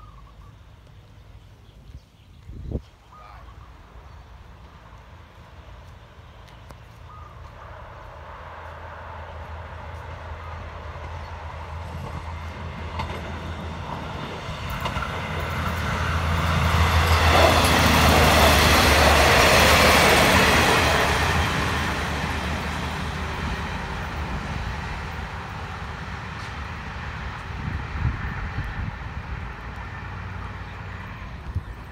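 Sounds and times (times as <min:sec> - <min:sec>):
train engine hum: 0:00.0 - 0:31.9
wheels on rails: 0:09.4 - 0:31.9.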